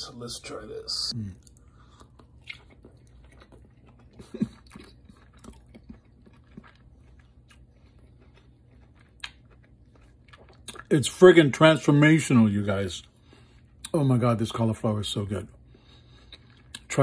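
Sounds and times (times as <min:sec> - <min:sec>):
person chewing crunchy food: 0:01.2 - 0:11.5, 0:15.6 - 0:17.0.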